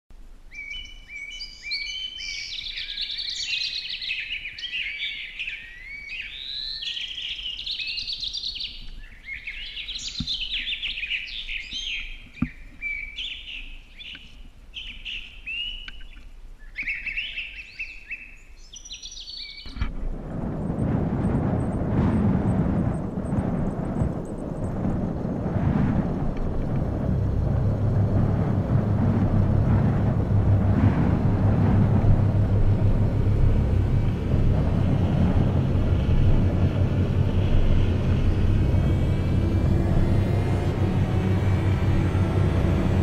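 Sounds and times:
small birds chirping: 0.5s - 19.8s
wind rushing over microphone: 19.7s - 43.0s.

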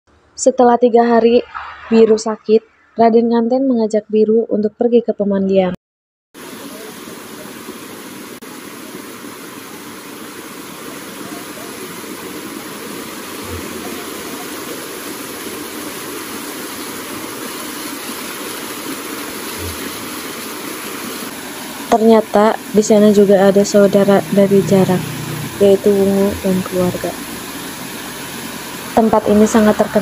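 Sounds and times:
waterfall splashing over rocks: 6.4s - 30.0s.

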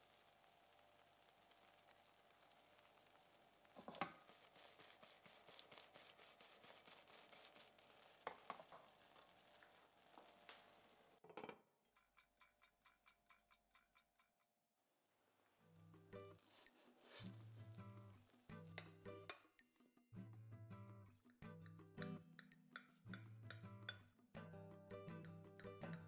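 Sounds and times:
oil sizzling in a pan: 0.0s - 11.2s, 15.9s - 19.3s.

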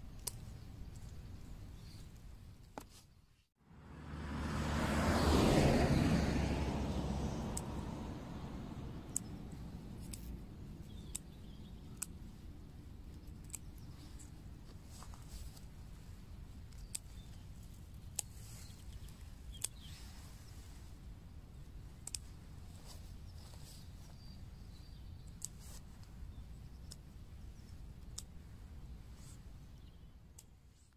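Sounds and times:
low steady rumble: 3.6s - 13.4s
dandelion stems snapping: 7.3s - 12.2s, 22.0s - 22.4s, 28.0s - 28.4s.

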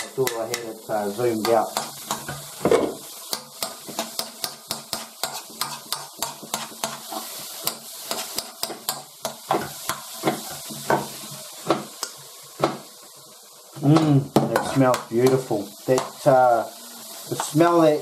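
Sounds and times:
metal spoon scraping a pan: 0.0s - 11.2s
mushrooms sizzling in a wok: 0.0s - 18.0s.

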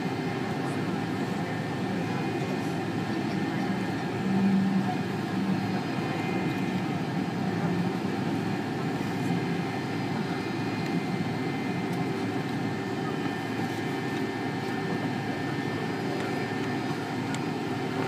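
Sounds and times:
faint engine whine: 0.0s - 18.0s
jet engines low rumble: 0.0s - 18.0s.

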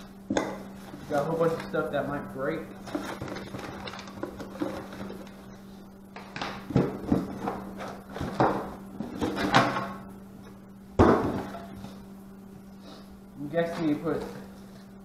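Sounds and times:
steady low hum: 0.0s - 15.0s
packing paper rustling: 2.8s - 5.4s
objects thumping onto wooden table: 11.0s - 11.7s.

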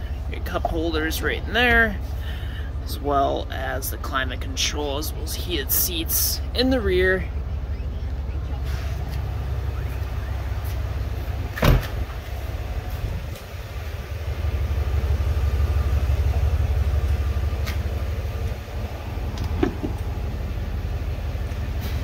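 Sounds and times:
low rumble: 0.0s - 22.0s
loud sharp thump: 11.6s - 12.0s.

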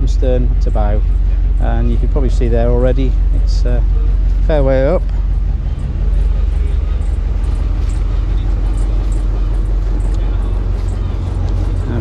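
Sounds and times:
ship engine idling: 0.0s - 12.0s
footsteps on wooden deck: 4.1s - 12.0s.

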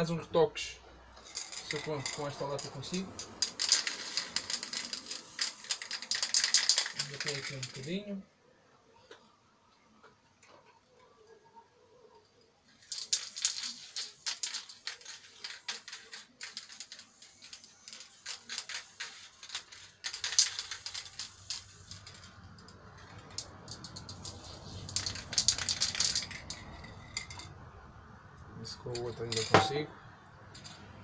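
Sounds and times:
spray paint can rattling: 1.2s - 8.0s, 12.8s - 27.5s.

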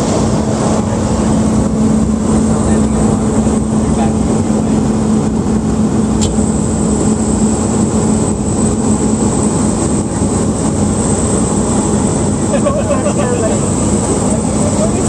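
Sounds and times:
aircraft cabin engine drone: 0.0s - 15.0s.

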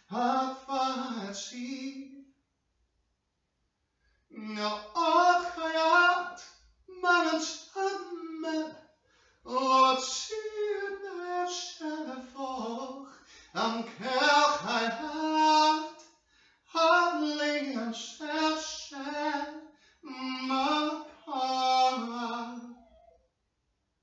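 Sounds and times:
person singing unaccompanied: 0.0s - 2.1s, 4.3s - 8.7s, 9.5s - 16.0s, 16.8s - 23.0s.

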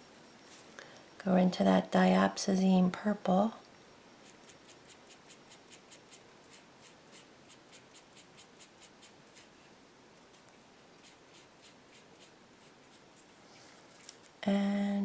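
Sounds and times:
paintbrush strokes: 4.2s - 14.2s.

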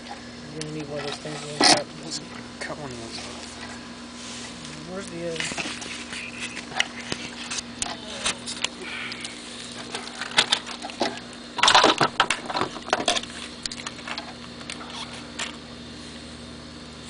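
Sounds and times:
steady low hum: 0.0s - 17.0s
clicks and rustles of wires: 4.4s - 15.6s.

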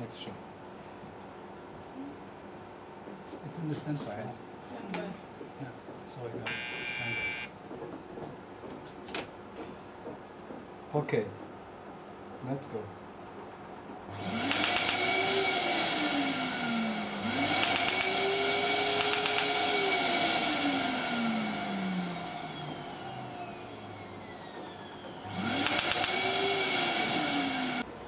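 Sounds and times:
rapid even clicking: 19.0s - 19.6s, 25.6s - 26.2s
laser mechanical whir: 25.2s - 27.8s.

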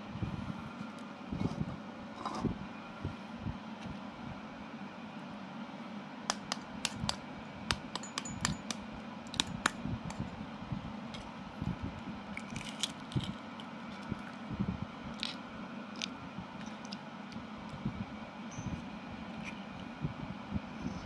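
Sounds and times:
knife tapping eggshell: 6.3s - 9.8s
eggshell crackling as peeled: 12.3s - 14.4s, 15.1s - 17.5s.

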